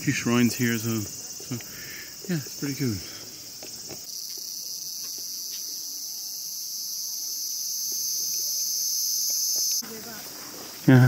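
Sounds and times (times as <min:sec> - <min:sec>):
cicadas buzzing: 0:00.0 - 0:11.0.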